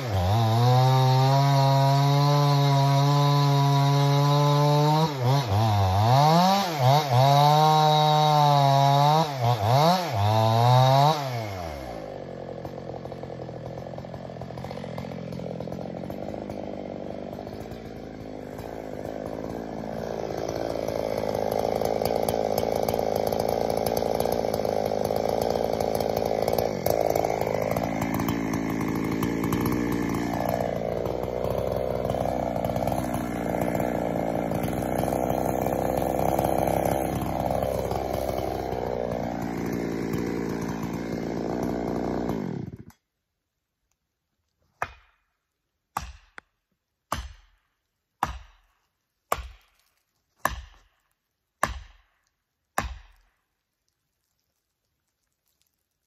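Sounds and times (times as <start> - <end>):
chainsaw cutting at full throttle: 0.0 - 43.0.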